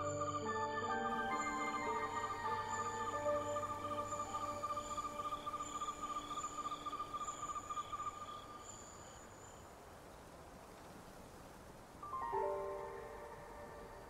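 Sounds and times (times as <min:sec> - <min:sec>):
held music notes: 0:00.0 - 0:07.1
high insect chirps: 0:00.0 - 0:10.2
crickets chirping: 0:00.0 - 0:14.0
faint hiss: 0:00.0 - 0:14.0.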